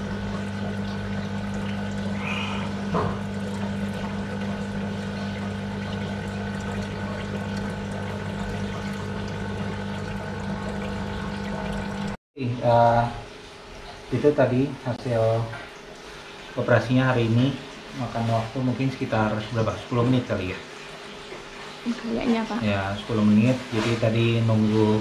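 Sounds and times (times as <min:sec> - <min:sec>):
water bubbling and trickling: 0:00.0 - 0:12.2
air pump humming: 0:00.0 - 0:13.3, 0:14.1 - 0:25.0.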